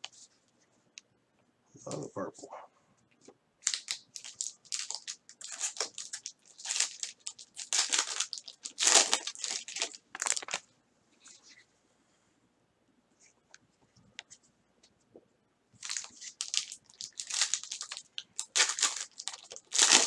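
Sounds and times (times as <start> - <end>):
plastic wrapper crinkling: 3.6 - 10.7, 15.8 - 20.0.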